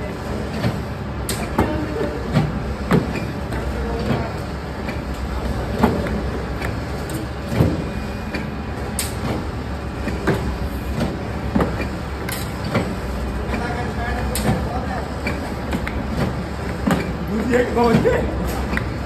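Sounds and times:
machinery hum: 0.0s - 19.0s.

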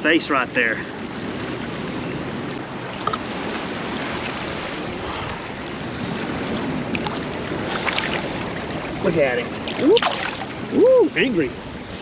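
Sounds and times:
river water rushing: 0.0s - 12.0s.

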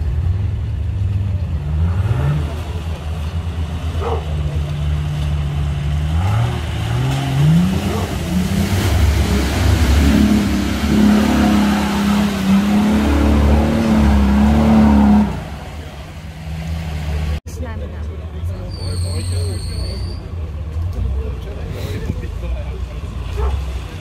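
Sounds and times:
engine revving under load: 1.3s - 17.4s.

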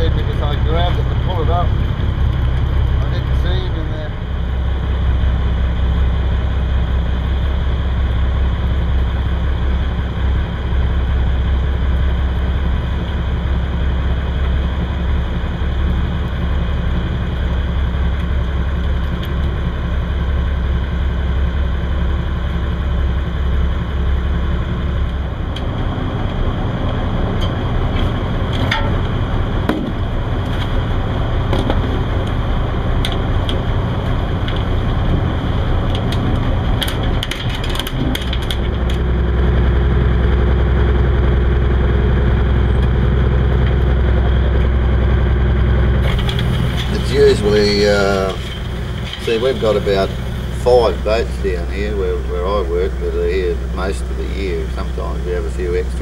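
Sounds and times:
boat engine droning: 0.0s - 56.0s
sharp engine knocks: 26.9s - 30.8s, 31.4s - 32.4s, 33.0s - 39.3s, 46.0s - 51.5s.

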